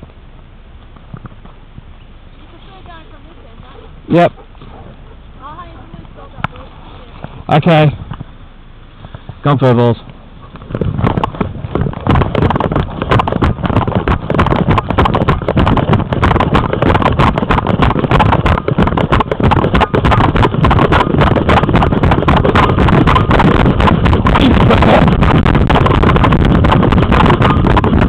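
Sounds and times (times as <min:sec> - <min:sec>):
wind buffeting microphone: 0:09.0 - 0:28.0.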